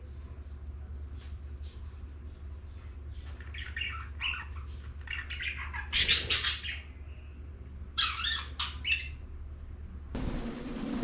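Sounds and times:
budgerigars chirping and chattering: 0:03.2 - 0:07.0, 0:08.0 - 0:09.2.

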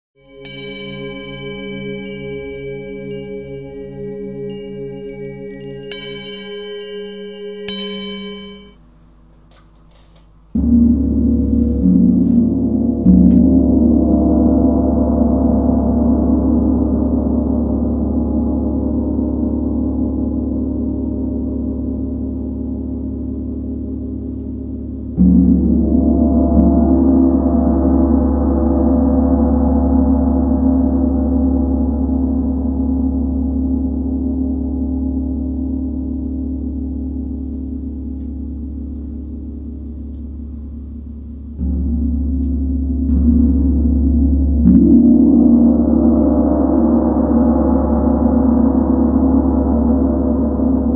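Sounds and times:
gong ringing: 0:00.3 - 0:08.8, 0:25.2 - 0:30.6
mallet striking gong: 0:00.4 - 0:08.8, 0:10.6 - 0:18.0, 0:25.1 - 0:29.5, 0:41.6 - 0:50.9.

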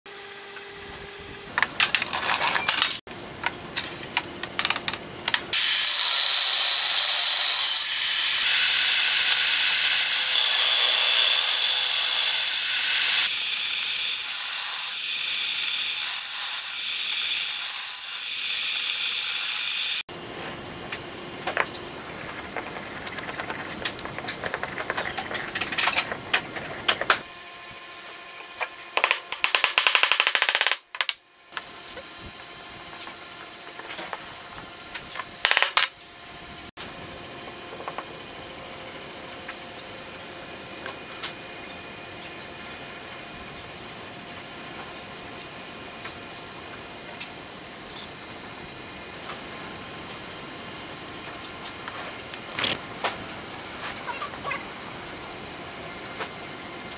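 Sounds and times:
table saw cutting wood: 0:05.5 - 0:20.1.

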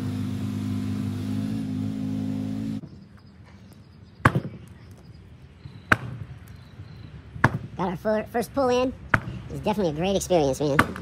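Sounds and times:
engine running: 0:00.0 - 0:03.0.

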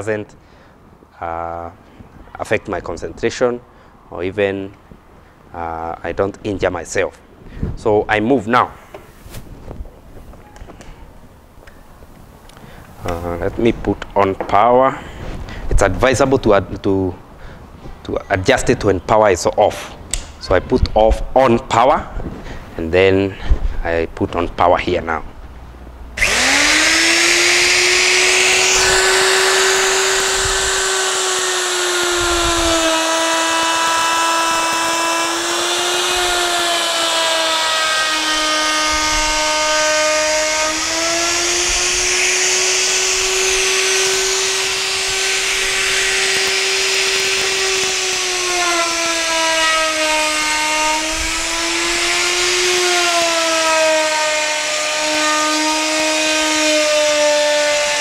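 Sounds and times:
router cutting wood: 0:26.2 - 0:58.0.

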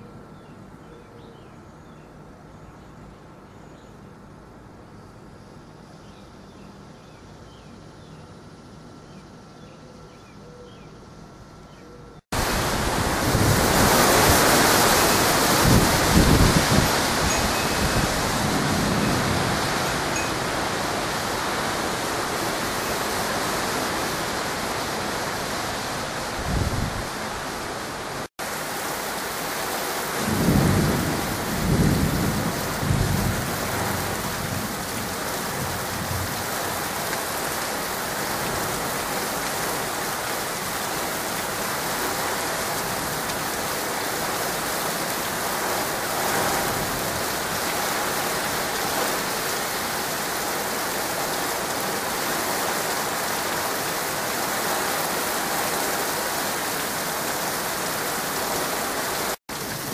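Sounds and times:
rain hissing: 0:12.3 - 0:59.9
thunder rumbling: 0:12.4 - 0:20.1, 0:30.2 - 0:36.5.

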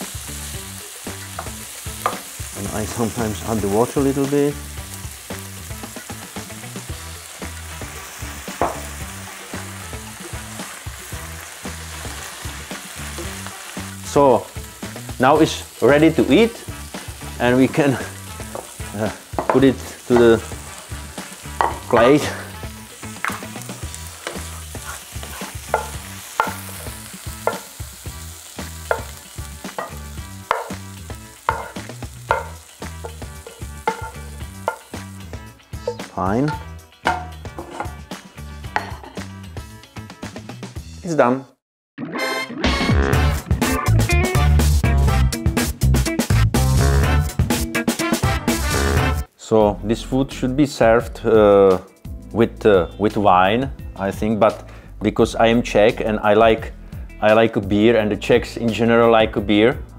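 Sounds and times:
food sizzling in frying pan: 0:00.0 - 0:39.6
spatula knocking on pan: 0:08.6 - 0:08.9, 0:19.4 - 0:20.3, 0:21.6 - 0:22.2, 0:23.2 - 0:23.6, 0:25.2 - 0:26.8, 0:27.4 - 0:27.7, 0:28.8 - 0:30.8, 0:31.4 - 0:35.0, 0:35.8 - 0:38.0, 0:38.7 - 0:39.2
spatula scraping food: 0:24.1 - 0:26.8, 0:33.0 - 0:34.8, 0:37.5 - 0:38.0
wooden spatula scraping pan: 0:37.5 - 0:38.0.

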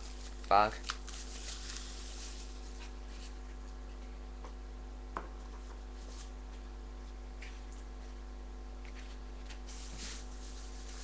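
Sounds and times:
packaging rustling: 0:00.0 - 0:02.8, 0:09.7 - 0:11.0
steady low hum: 0:00.0 - 0:11.0.

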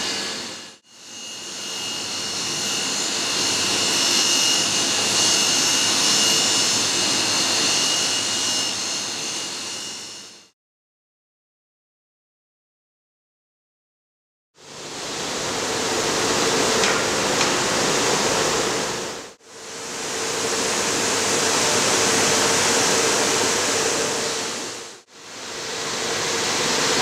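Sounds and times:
machinery hum: 0:14.6 - 0:27.0.

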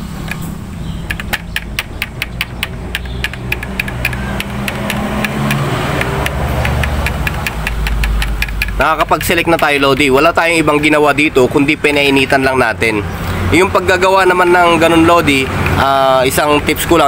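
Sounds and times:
selector buttons clicking: 0:00.2 - 0:10.2.

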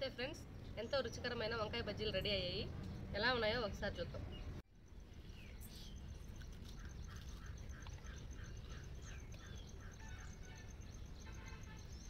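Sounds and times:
bird chirping: 0:00.0 - 0:12.0
fuller bird call: 0:06.7 - 0:12.0.

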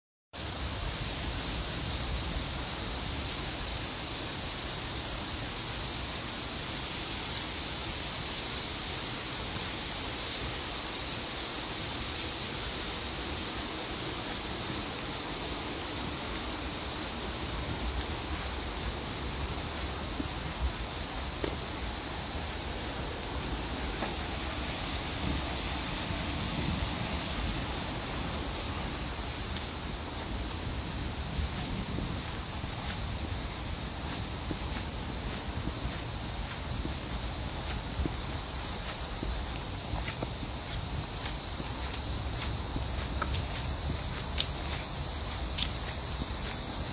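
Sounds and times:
rain hissing: 0:00.4 - 0:46.9
wind rumble on microphone: 0:23.2 - 0:46.9.

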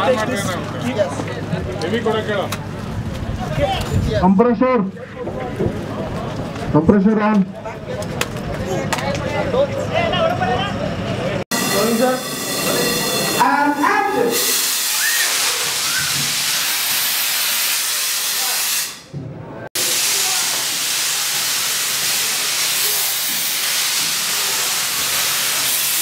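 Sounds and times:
compressor air hissing: 0:14.3 - 0:19.2, 0:19.8 - 0:26.0.

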